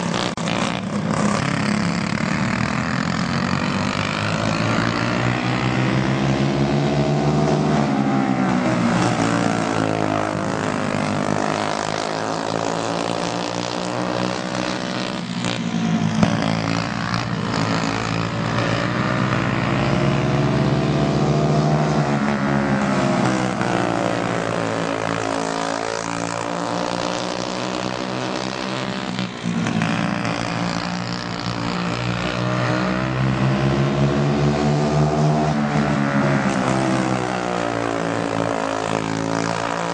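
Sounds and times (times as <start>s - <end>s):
kart engines racing: 0.0s - 39.9s.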